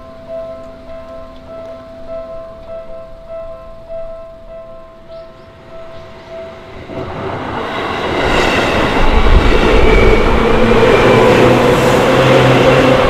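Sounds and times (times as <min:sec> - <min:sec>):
level crossing warning bell: 0:00.0 - 0:09.1
train wheels rumbling on track: 0:05.5 - 0:13.0.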